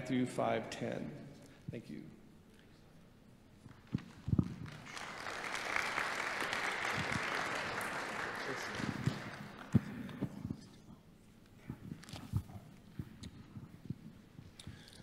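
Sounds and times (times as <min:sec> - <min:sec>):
congregation applauding: 0:03.7 - 0:10.3.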